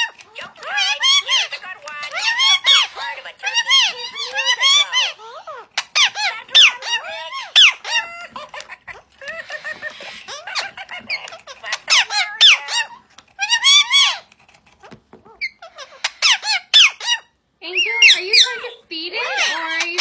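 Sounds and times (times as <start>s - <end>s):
parrot chirps and whistles: 0.0s - 8.4s, 15.3s - 20.0s.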